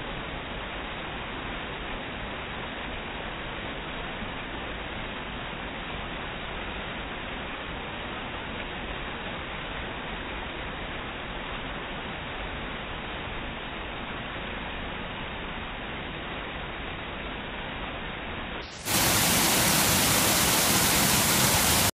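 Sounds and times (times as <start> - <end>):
waterfall rushing: 18.6 - 21.9.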